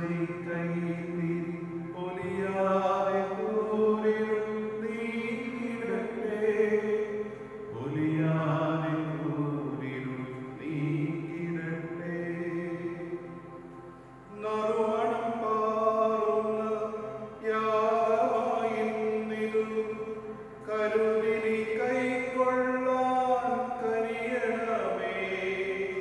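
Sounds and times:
man chanting into a microphone: 14.3 - 26.0.

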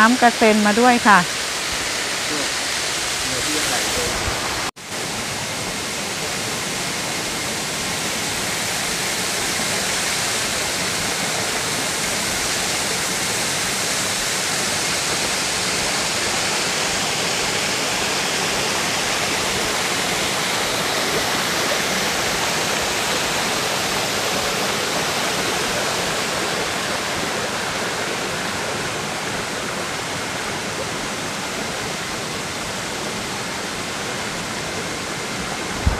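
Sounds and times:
waterfall rushing onto rocks: 0.1 - 35.9.

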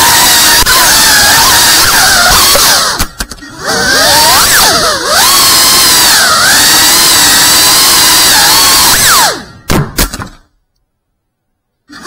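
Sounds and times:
quadcopter motors whining: 0.0 - 9.7
sharp knocks: 9.7 - 10.4.

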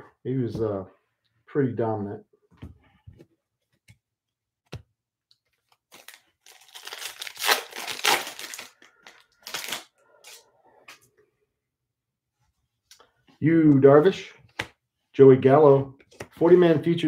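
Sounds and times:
foil wrapper crinkling and tearing: 5.9 - 10.4.

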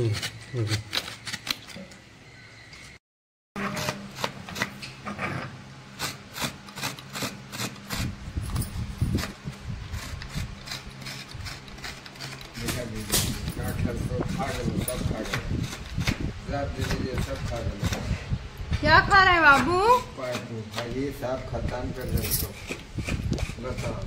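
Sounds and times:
coconut rasping on grater blade: 0.0 - 1.7, 3.6 - 8.2, 8.8 - 18.2, 22.5 - 24.0.

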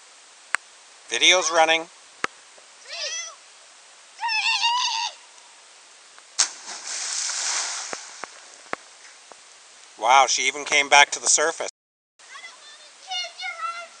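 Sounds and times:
high-pitched wavering cries: 4.2 - 5.2
water drips: 6.1 - 10.0
body smacking into water: 6.4 - 8.4
splashing spray falling: 6.4 - 9.2.

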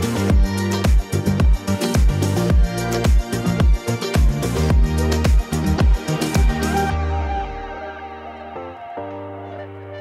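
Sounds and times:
sustained bass line: 0.0 - 8.8
electronic dance music: 0.0 - 9.9
steady kick drum: 0.3 - 6.6.

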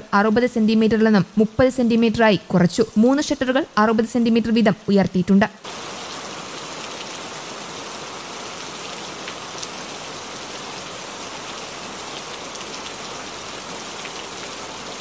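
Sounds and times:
steady rain falling: 5.6 - 15.0.

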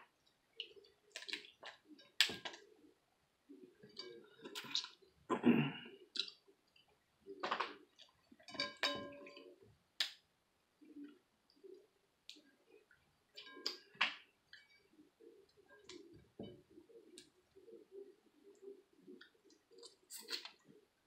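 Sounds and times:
sucking and chewing: 0.6 - 2.8, 3.8 - 5.2, 6.0 - 10.2, 19.1 - 20.7.

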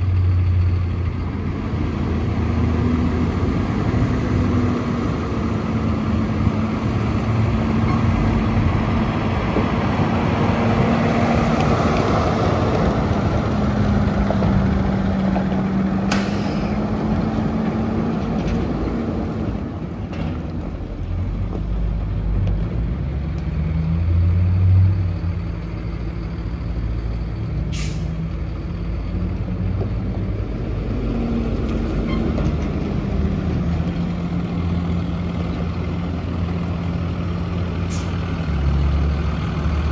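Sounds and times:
air brake hisses: 16.1 - 16.8, 27.7 - 28.2, 37.8 - 38.2
truck diesel engine running: 24.8 - 39.9.

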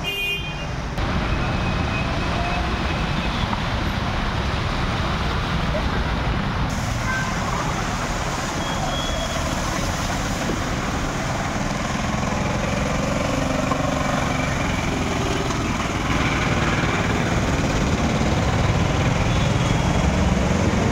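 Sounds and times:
truck engine: 0.8 - 20.9
wheels washing through water: 1.0 - 20.9
car engines running: 3.4 - 20.9
motorcycles running: 10.6 - 20.9.

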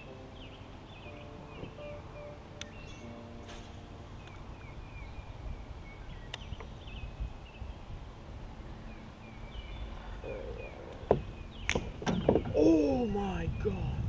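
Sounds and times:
birds chirping: 0.0 - 14.0
low outdoor rumble: 0.0 - 14.0
sharp knocks: 11.1 - 12.6.

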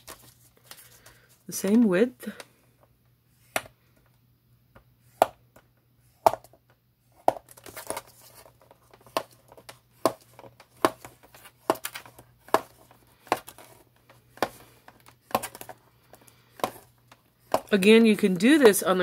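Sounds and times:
paper rustling: 0.0 - 2.4, 7.4 - 19.0.

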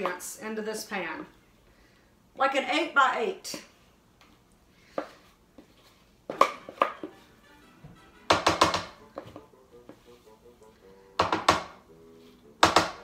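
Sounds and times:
faint music: 5.0 - 13.0.

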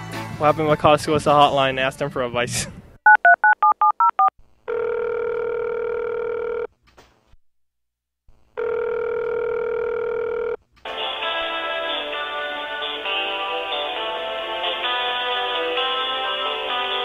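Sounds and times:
telephone ringback tone: 3.1 - 6.7, 8.6 - 10.6.

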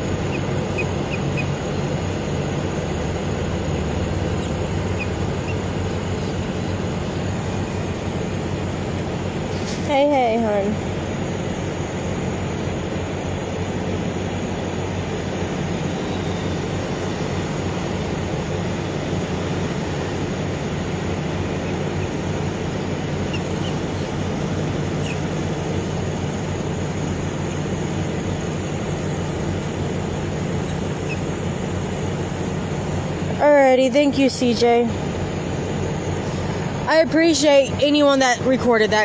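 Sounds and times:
low rumble of vehicles: 0.0 - 39.0.

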